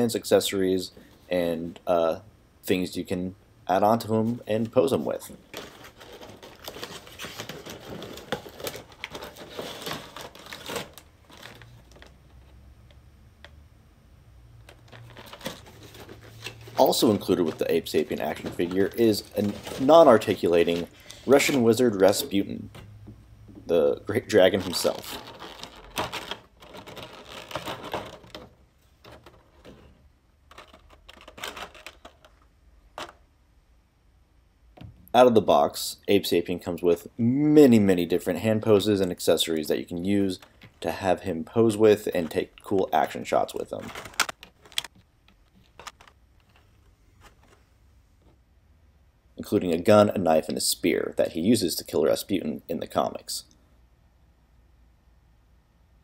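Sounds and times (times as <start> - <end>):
plastic packaging crinkling: 4.6 - 12.5, 14.6 - 22.4, 24.0 - 33.2, 41.7 - 47.6
cardboard boxes handled: 14.9 - 21.7.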